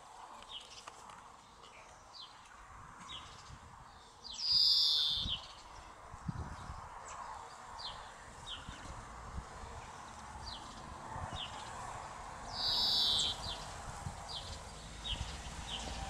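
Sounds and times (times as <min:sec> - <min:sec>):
bird chirps sliding downward: 0:12.5 - 0:13.6
rasping bird call: 0:12.6 - 0:13.4.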